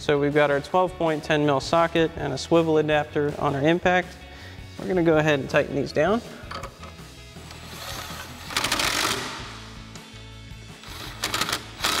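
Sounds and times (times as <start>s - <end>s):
background music: 0.0s - 12.0s
impact wrench hammering: 8.5s - 9.7s.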